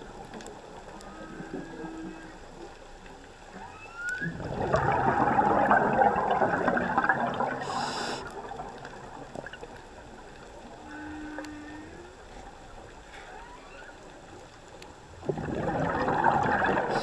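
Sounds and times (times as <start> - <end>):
whale song: 0.7 - 2.8, 3.5 - 17.0
diver's breath bubbling: 4.4 - 9.5, 15.2 - 17.0
brief hiss: 7.7 - 8.4.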